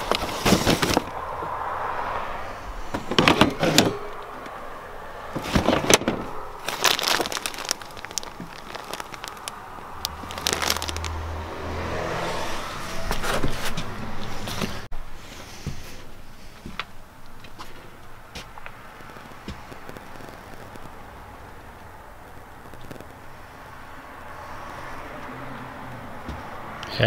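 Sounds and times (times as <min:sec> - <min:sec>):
cardboard boxes rustling and knocking: 0:00.0 - 0:01.1, 0:05.4 - 0:09.4
plastic bins and bags handled: 0:00.0 - 0:01.2, 0:02.9 - 0:04.3, 0:05.3 - 0:11.2.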